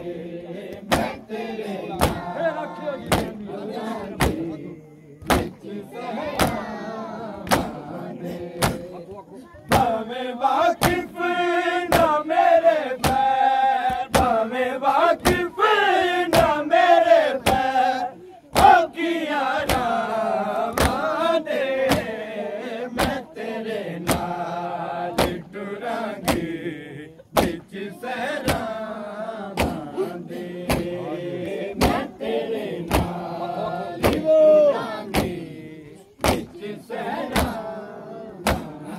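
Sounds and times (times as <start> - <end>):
mourning lament chanting: 0.0 - 38.9
hands beating on chests: 13.0 - 13.3, 32.9 - 33.2, 34.0 - 34.4.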